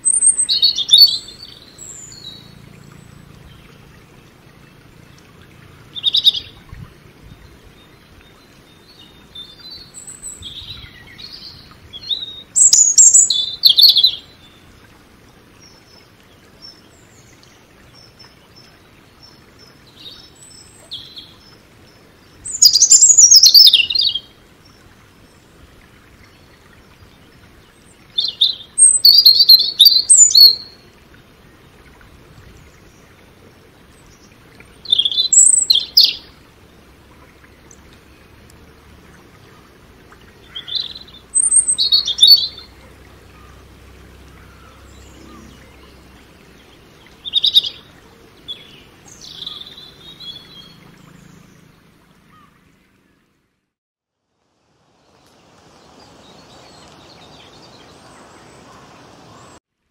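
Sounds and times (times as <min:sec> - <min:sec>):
robin singing: 0:00.0 - 0:03.8, 0:05.9 - 0:06.6, 0:07.3 - 0:14.7, 0:16.6 - 0:24.4, 0:27.8 - 0:30.8, 0:33.9 - 0:36.4, 0:40.3 - 0:52.6, 0:55.8 - 0:59.6.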